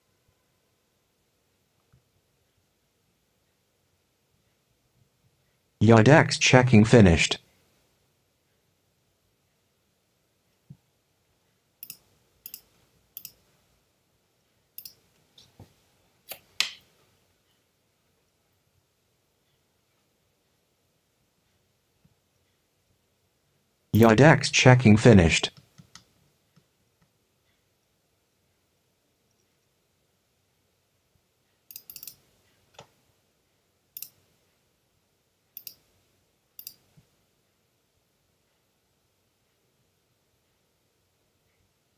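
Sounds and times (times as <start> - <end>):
computer mouse clicks: 11.8 - 13.4, 14.8 - 15.5, 31.7 - 32.9, 35.6 - 35.8, 36.6 - 36.9.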